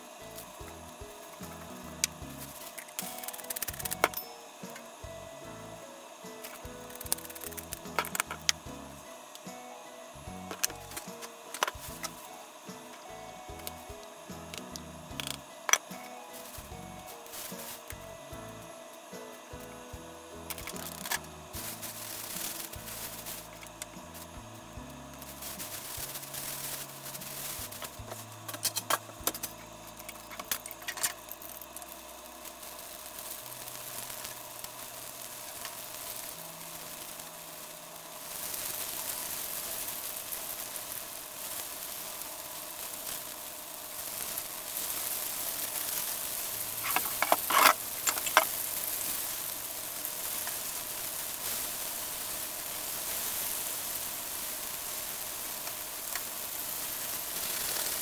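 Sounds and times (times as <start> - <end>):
chicken sizzling in oil: 0.0 - 58.0
plastic bag crackling: 16.3 - 18.0, 20.5 - 24.3, 25.2 - 58.0.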